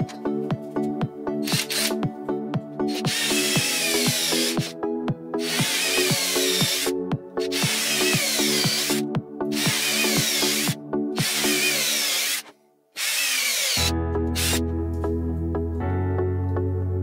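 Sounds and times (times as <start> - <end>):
background music with steady beat: 0.0 - 12.4, 13.8 - 17.0
cordless drill into plywood: 2.9 - 4.7, 5.4 - 6.9, 7.5 - 14.6.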